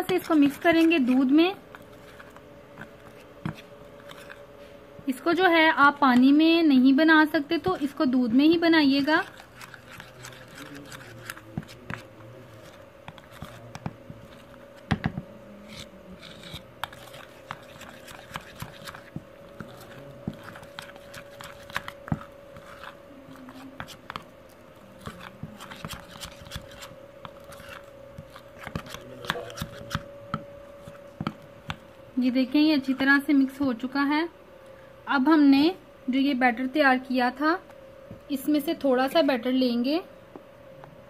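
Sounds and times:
spoon scraping in bowl: 0.0s - 4.6s, 7.6s - 15.0s, 15.6s - 31.8s
steady hum: 0.0s - 41.0s.

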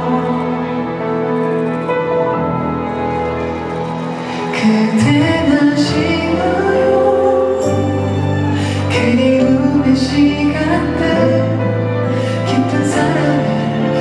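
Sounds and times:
instrumental accompaniment: 0.0s - 14.0s
man singing a slow ballad: 8.8s - 11.8s.

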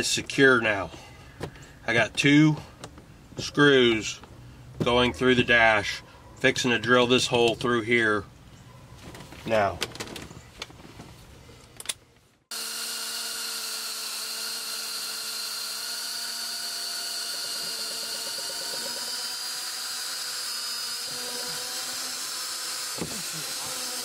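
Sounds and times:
cordless drill whining: 12.5s - 24.0s.

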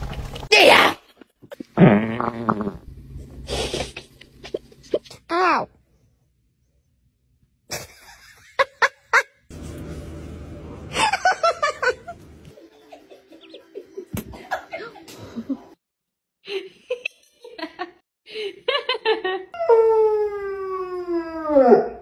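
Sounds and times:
person laughing: 7.7s - 9.4s, 10.9s - 15.8s.

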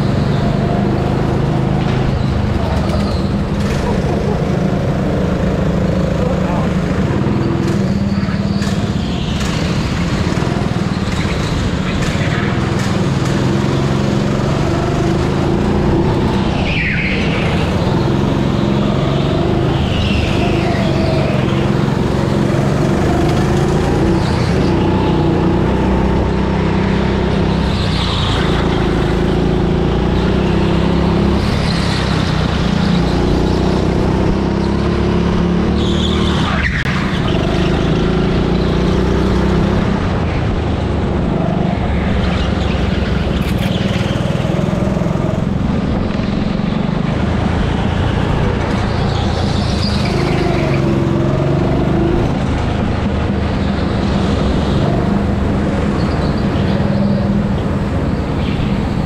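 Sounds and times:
go-kart motor drone: 0.0s - 59.0s
tyre squeals: 5.8s - 12.6s, 35.6s - 38.2s.

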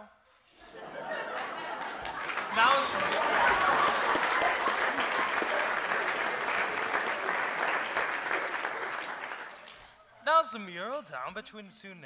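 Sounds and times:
audience applauding: 1.1s - 10.0s.

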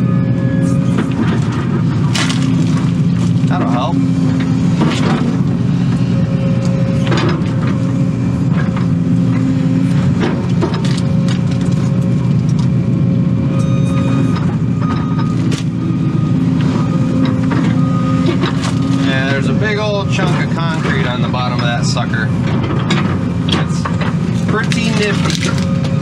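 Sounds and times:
excavator diesel engine: 0.0s - 26.0s
hydraulic whine: 0.0s - 26.0s
roots cracking and knocking: 1.0s - 5.4s, 10.0s - 12.8s, 17.5s - 21.5s, 23.6s - 26.0s.

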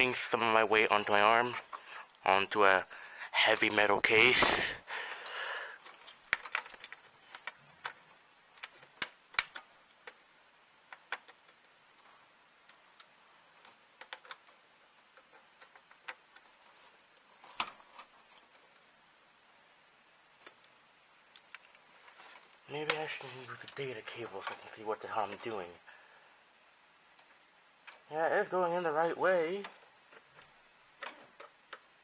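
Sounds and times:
plastic cable connectors clicking: 5.8s - 10.2s, 12.6s - 16.5s, 20.4s - 21.9s.

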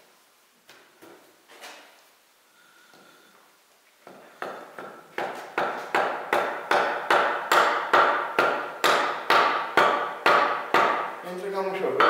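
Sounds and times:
hammer striking metal: 4.4s - 11.1s.

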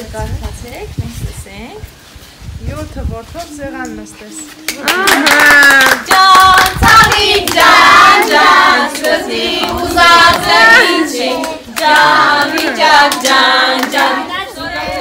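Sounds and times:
hand clapping: 4.7s - 10.6s, 11.3s - 14.1s
women and children singing: 4.8s - 15.0s.

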